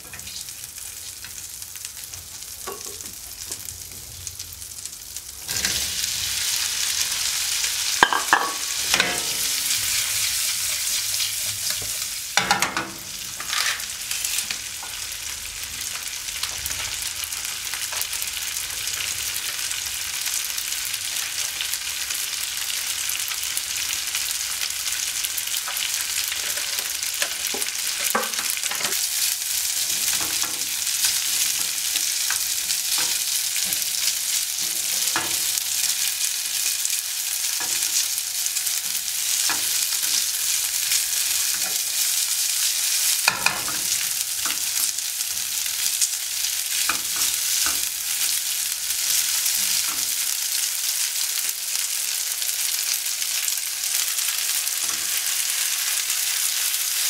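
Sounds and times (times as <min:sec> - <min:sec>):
food sizzling in a frying pan: 0:00.0 - 0:57.0
spatula scraping a pan: 0:08.8 - 0:12.6, 0:13.3 - 0:14.4.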